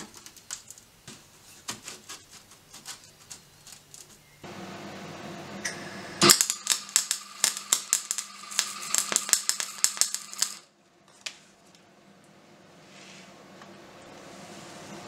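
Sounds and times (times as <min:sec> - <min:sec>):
welding arc crackling and popping: 0:05.6 - 0:10.7.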